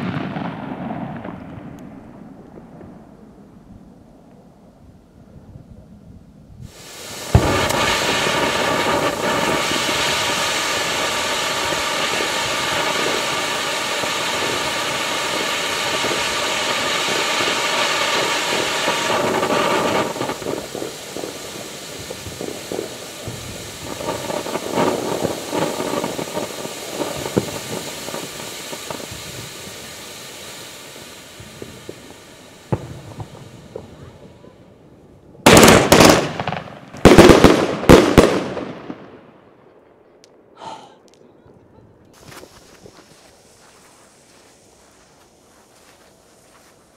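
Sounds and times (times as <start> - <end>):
firework fountain hissing: 0.0 - 1.4, 6.6 - 39.1, 40.6 - 46.9
firework sputtering and crackling: 0.0 - 3.2, 6.6 - 46.9
firework lighting pop: 7.2 - 9.8.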